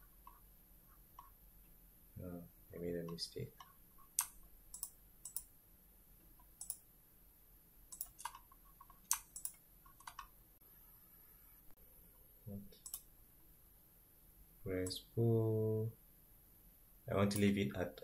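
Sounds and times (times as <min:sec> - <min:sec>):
computer mouse clicking: 0:03.0 - 0:05.5, 0:06.3 - 0:06.8, 0:07.9 - 0:10.4, 0:12.8 - 0:13.1.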